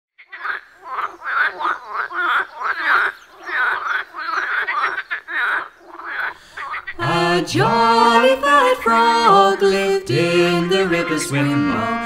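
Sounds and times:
frogs croaking: 0:00.2 - 0:12.0.

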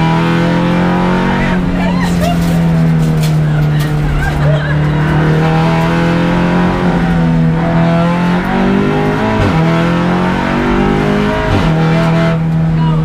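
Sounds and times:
race car engine under load: 0:00.0 - 0:13.0.

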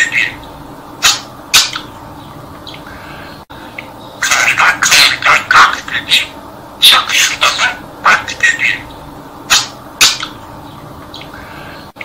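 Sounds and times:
budgerigar chattering: 0:01.0 - 0:01.9, 0:04.2 - 0:10.4.

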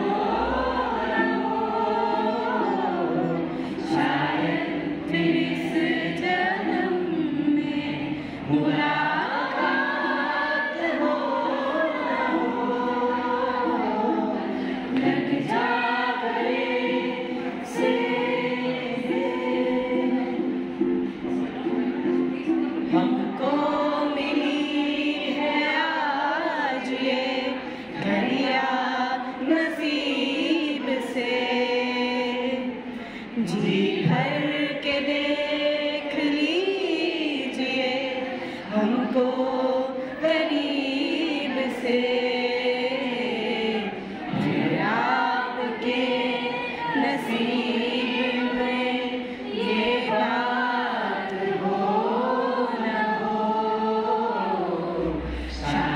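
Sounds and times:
group of voices singing: 0:00.0 - 0:55.9.

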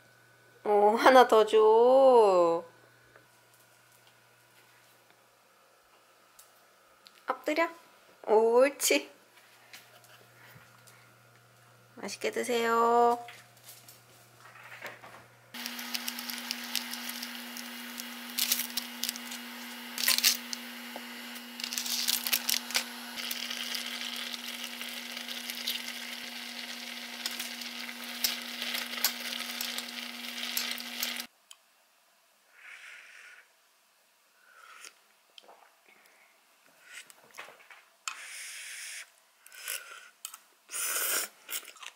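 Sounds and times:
cooktop hum: 0:00.0 - 0:32.2
pot boiling with loud bubbling: 0:15.5 - 0:31.3.

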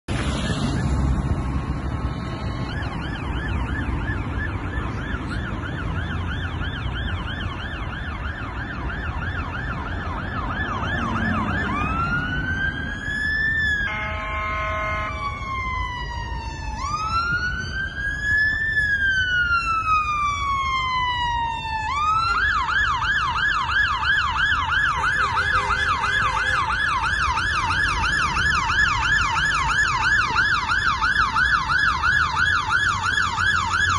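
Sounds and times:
low rumble of engines: 0:00.0 - 0:33.9
fire engine siren: 0:00.1 - 0:33.9
buzzing bullhorn blast: 0:13.9 - 0:15.2.

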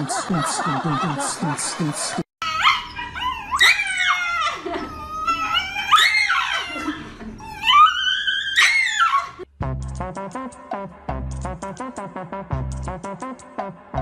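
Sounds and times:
dog screaming high wavering cries: 0:02.4 - 0:09.5.

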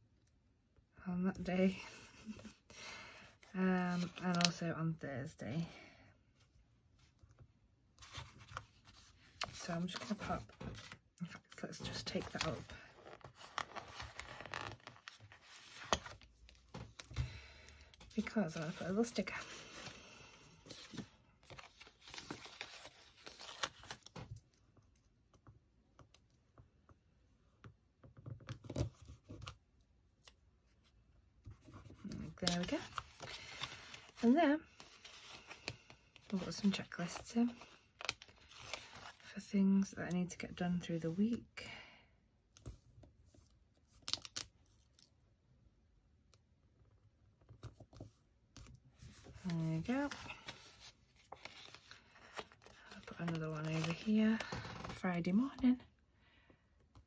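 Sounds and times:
sticker sheet crinkling: 0:49.2 - 0:55.0.

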